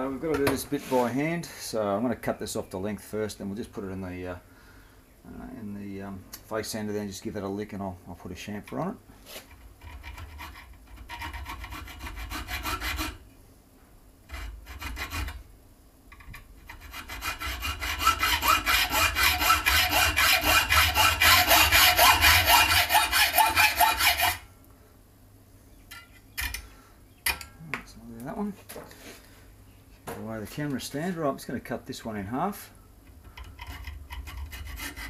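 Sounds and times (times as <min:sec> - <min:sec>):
hacksaw cutting metal: 0:09.8 - 0:13.2, 0:14.3 - 0:15.4, 0:16.7 - 0:24.4, 0:33.4 - 0:35.0.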